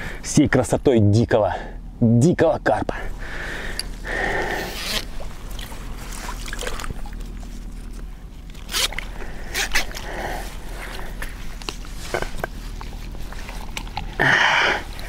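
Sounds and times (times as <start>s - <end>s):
light water sloshing: 3.1s - 15.0s
rustling: 3.6s - 15.0s.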